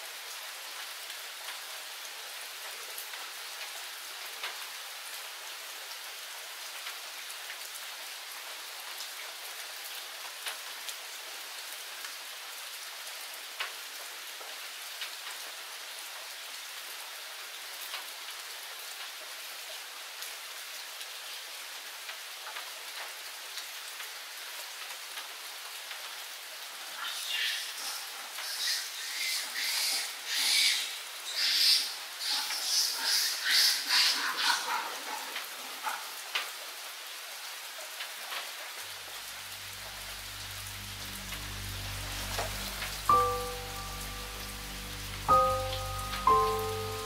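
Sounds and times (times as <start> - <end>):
rain falling on leaves: 0.0 - 47.0.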